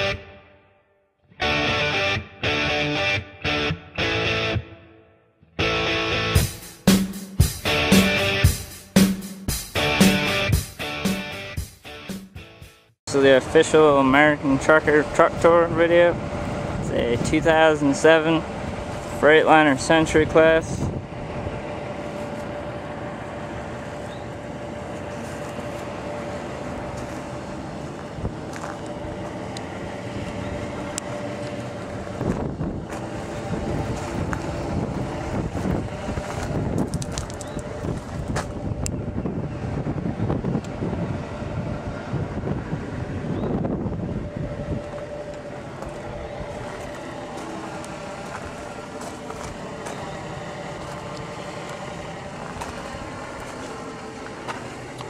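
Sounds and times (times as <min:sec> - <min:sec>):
diesel truck engine idling: 0:05.6 - 0:12.1, 0:13.1 - 0:55.0
faint constant whine: 0:13.1 - 0:55.0
low mechanical hum: 0:13.1 - 0:55.0
wind buffeting microphone: 0:14.7 - 0:19.2, 0:20.0 - 0:22.1, 0:27.8 - 0:47.0.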